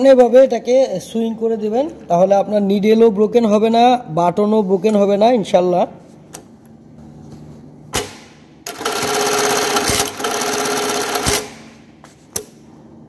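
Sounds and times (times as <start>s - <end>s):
sewing machine stitching: 8.7s - 11.6s.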